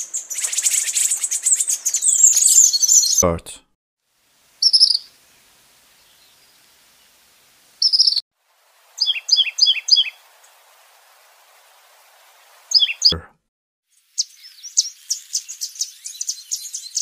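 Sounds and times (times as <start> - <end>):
songbird twittering chirp: 0.0 - 3.3, 4.6 - 5.1, 7.8 - 8.2, 8.8 - 11.8, 12.4 - 13.2, 13.9 - 17.0
faint hiss: 4.0 - 13.1.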